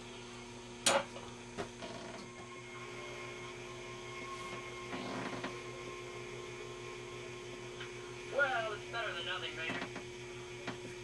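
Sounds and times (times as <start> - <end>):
television electrical hum: 0.0 - 11.0.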